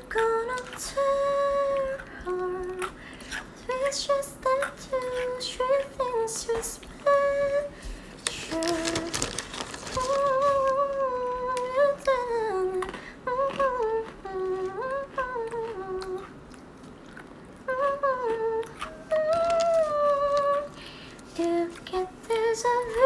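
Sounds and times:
woman humming: 17.7s - 20.8s.

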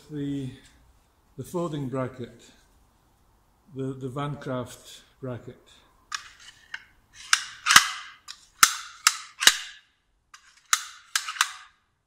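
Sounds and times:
metallic clicks of bracket: 6.1s - 9.8s, 10.4s - 11.8s.

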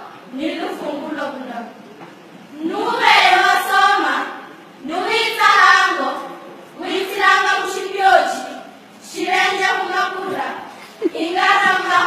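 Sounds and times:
girls reciting in unison: 2.5s - 12.0s.

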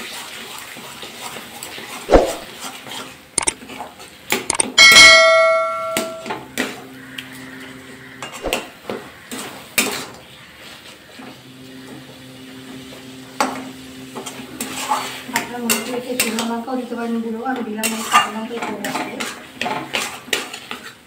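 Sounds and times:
sharp metal clang: 4.6s - 6.4s
metal spatula scraping in pan: 14.2s - 21.0s.

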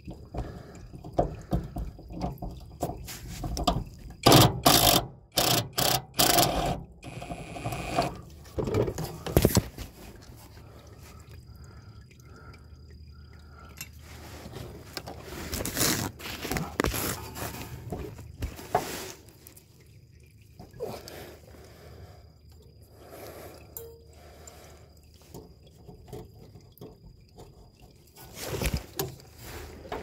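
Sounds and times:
power ratchet running: 4.2s - 8.1s.

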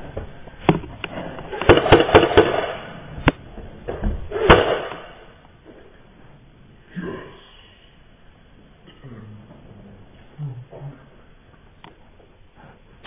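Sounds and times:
airsoft guns popping: 1.5s - 3.4s.

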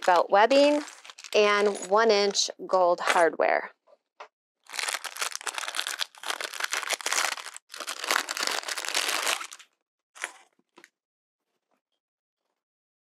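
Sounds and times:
plastic wrapping crinkling: 0.0s - 2.1s, 4.7s - 10.4s.

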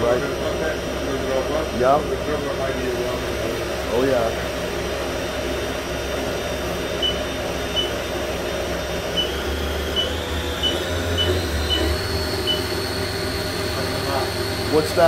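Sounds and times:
machine humming: 0.0s - 15.0s
short high beeps: 7.0s - 7.2s, 7.8s - 8.0s, 10.0s - 12.7s
thin high whine: 9.1s - 15.0s.

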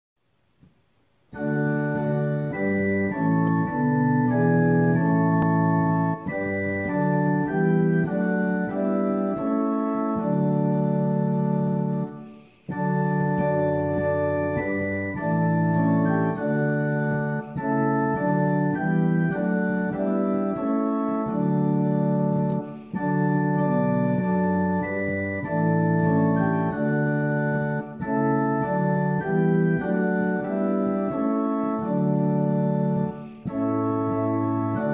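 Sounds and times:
organ playing slow chords: 1.3s - 34.9s.

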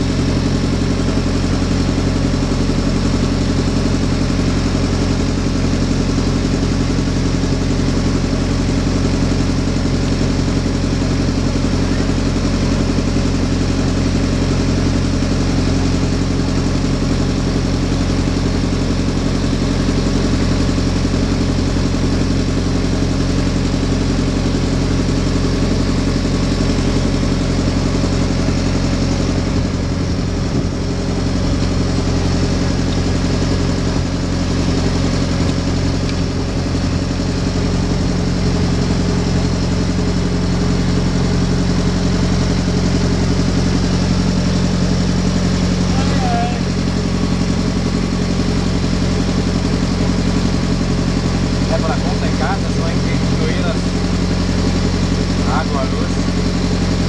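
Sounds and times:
boat engine running: 0.0s - 57.0s.

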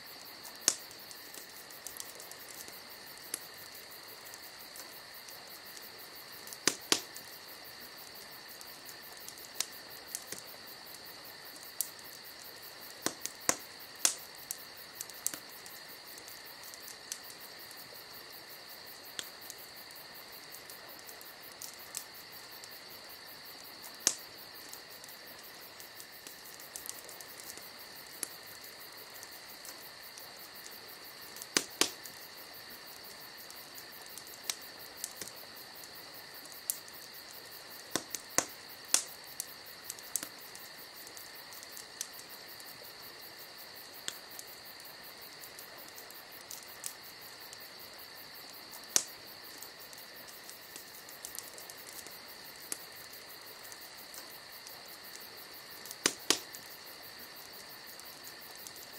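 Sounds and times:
background hiss: 0.0s - 58.9s
sharp clicks and pops: 55.9s - 56.6s.

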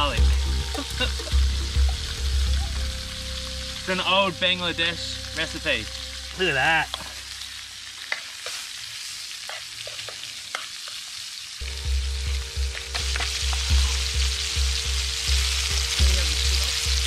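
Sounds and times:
fish sizzling in oil: 0.0s - 17.0s.

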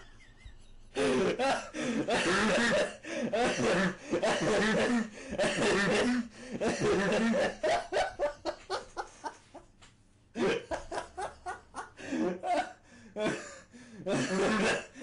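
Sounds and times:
man laughing: 0.0s - 2.8s, 10.4s - 12.6s.

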